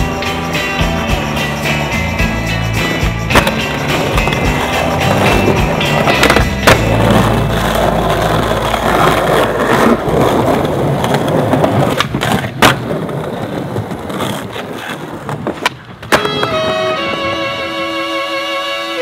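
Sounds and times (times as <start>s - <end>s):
skateboard wheels rolling on stone: 0.0s - 19.0s
skateboard clacks: 2.8s - 18.6s
violin melody: 16.1s - 19.0s.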